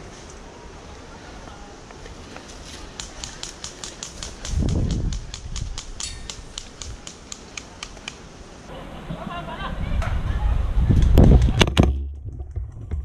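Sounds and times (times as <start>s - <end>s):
insect ticking: 2.9s - 8.2s
low rumble on microphone: 9.8s - 13.0s.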